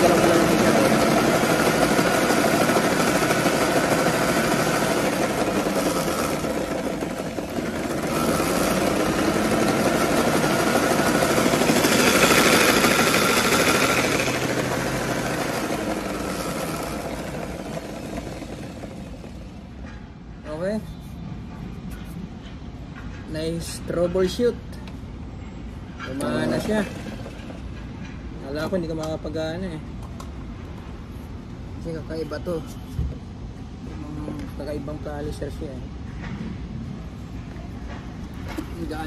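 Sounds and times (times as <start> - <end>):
floor polisher motor whining: 0.0 - 19.6.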